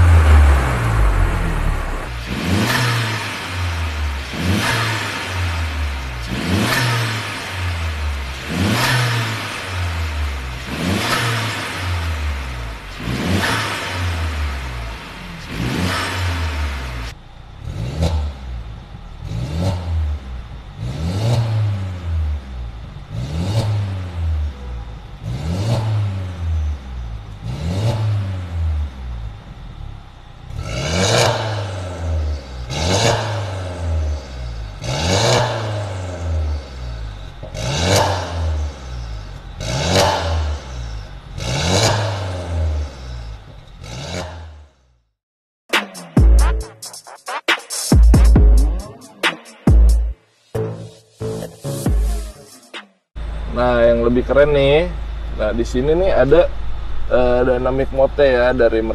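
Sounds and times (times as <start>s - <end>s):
car engine revving: 0.0s - 45.0s.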